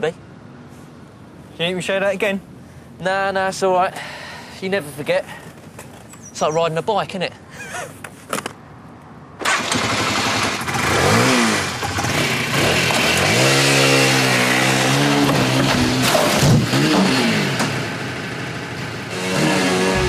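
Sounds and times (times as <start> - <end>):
motorcycle engine revving: 9.5 - 20.0.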